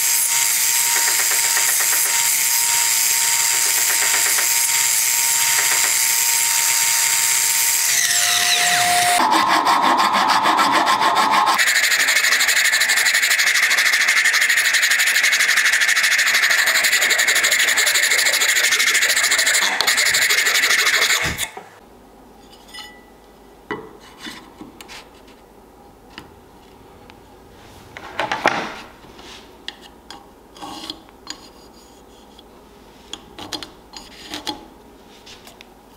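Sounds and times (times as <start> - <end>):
circular saw cutting wood: 0.0 - 21.7
hand file rasping wood: 8.6 - 21.6.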